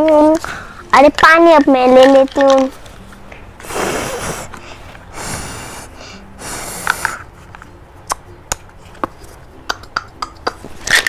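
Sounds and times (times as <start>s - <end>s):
short breathy hissing: 3.6s - 7.2s.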